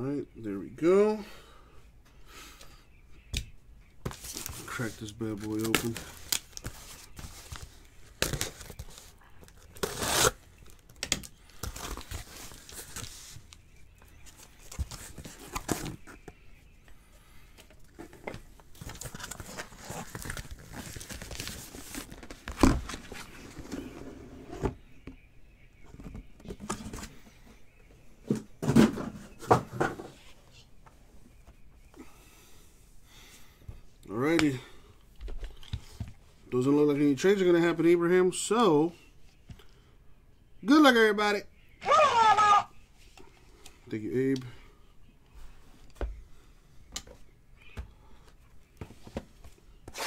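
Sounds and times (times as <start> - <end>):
cardboard ripping and crumpling: 9.7 - 10.4, 18.8 - 22.9.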